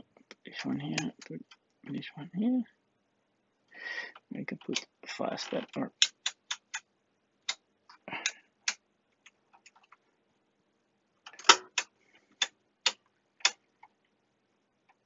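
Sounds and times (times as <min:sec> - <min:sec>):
rotary switches clicking: 0:05.6 - 0:06.9, 0:11.3 - 0:13.6.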